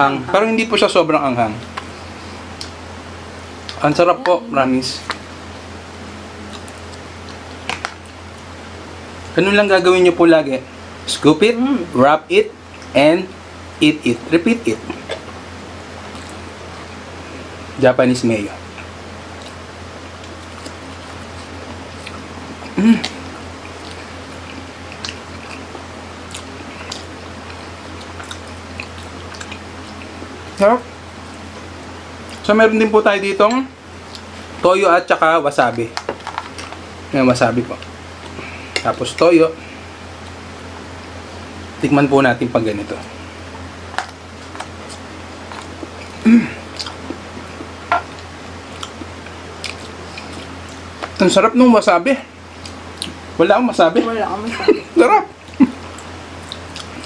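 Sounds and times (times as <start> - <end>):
steady low hum: 0.0 - 57.0
chewing sushi: 6.3 - 8.5, 18.6 - 30.6, 43.0 - 51.2, 52.6 - 53.2, 55.4 - 57.0.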